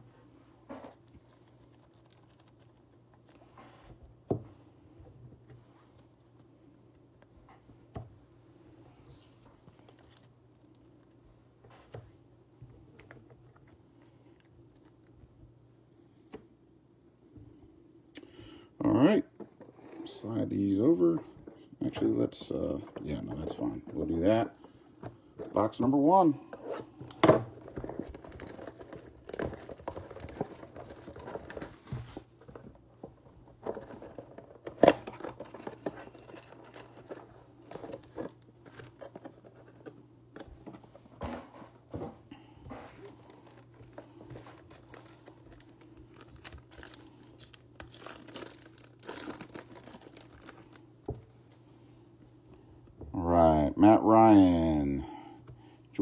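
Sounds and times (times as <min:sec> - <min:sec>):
plastic wrapping crinkling: 0:27.6 - 0:32.5, 0:42.9 - 0:51.6
cardboard and card packs tearing: 0:44.4 - 0:50.8.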